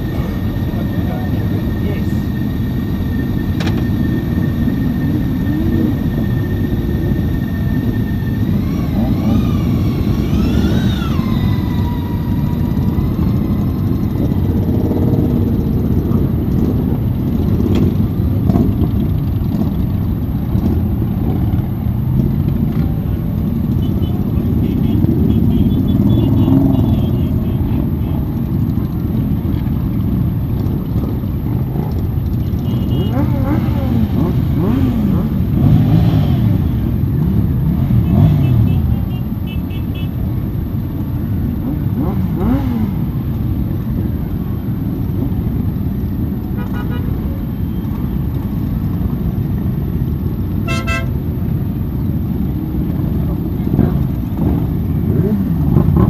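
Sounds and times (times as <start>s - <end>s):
motorcycle engines running: 0.0s - 56.0s
horn short beeps: 50.7s - 51.1s.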